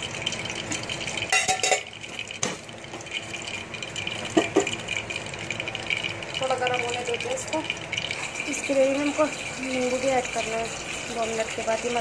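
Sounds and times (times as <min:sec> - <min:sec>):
metal kitchenware clinking: 0:01.3 - 0:02.6.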